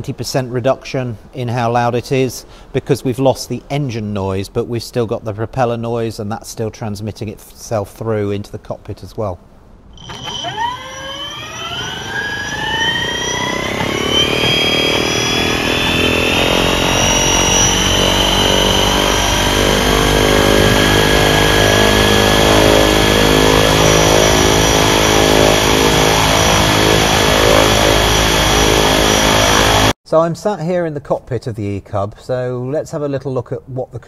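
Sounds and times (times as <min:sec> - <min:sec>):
electric motor whining: 0:10.0 - 0:30.0
propeller rushing noise: 0:10.0 - 0:30.0.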